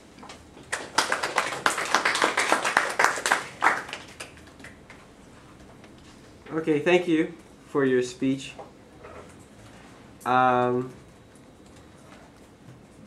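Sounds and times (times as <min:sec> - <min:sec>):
hands clapping: 0:00.6 - 0:05.0.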